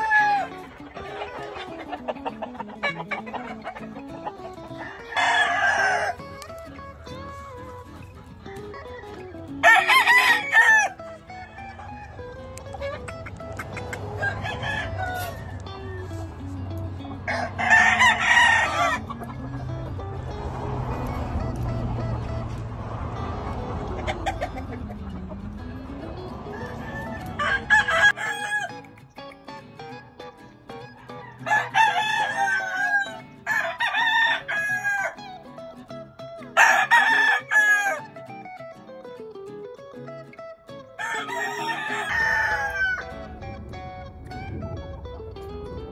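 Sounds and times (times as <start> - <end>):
rooster crowing: 0.0 - 0.6, 4.8 - 6.8, 8.7 - 12.4, 14.1 - 16.4, 17.3 - 20.0, 26.4 - 28.8, 30.8 - 35.4, 36.6 - 38.1, 41.0 - 43.6.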